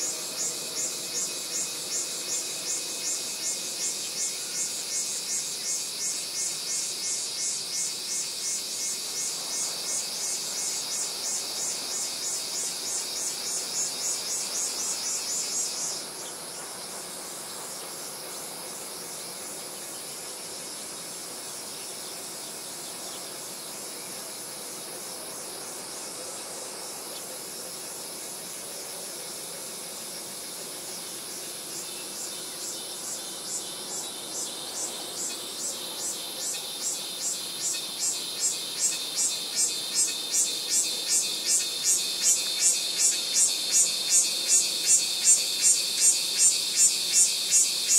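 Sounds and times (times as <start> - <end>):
insects pulsing chorus: 0.0 - 47.9.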